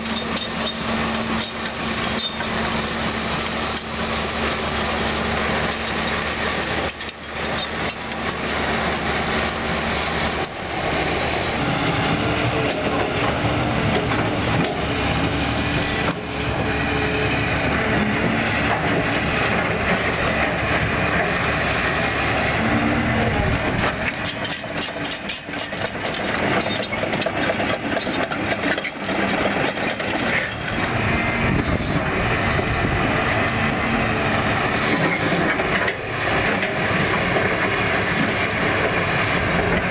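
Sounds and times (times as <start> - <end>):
excavator diesel engine under load: 0.0 - 39.9
machine rattling and clanking: 23.7 - 33.0.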